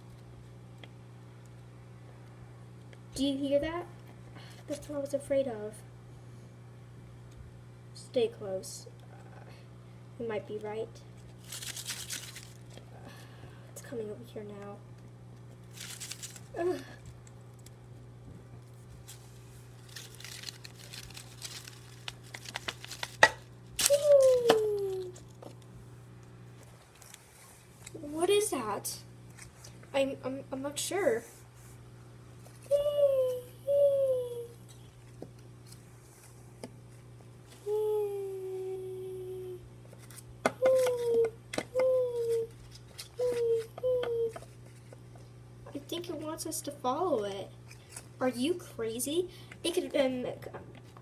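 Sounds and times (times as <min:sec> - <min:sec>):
steady low hum: 0:00.0 - 0:51.0
plastic leaves rustling: 0:11.4 - 0:12.8, 0:15.6 - 0:16.9, 0:19.0 - 0:25.3
person humming a note: 0:37.7 - 0:39.6.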